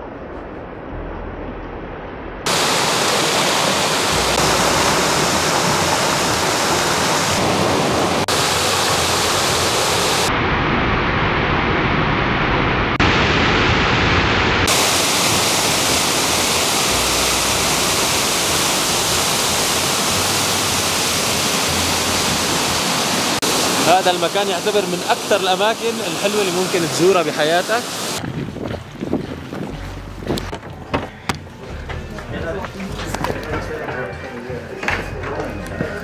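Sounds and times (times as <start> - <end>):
waterfall rushing over rock: 2.5 - 10.4, 12.0 - 28.2.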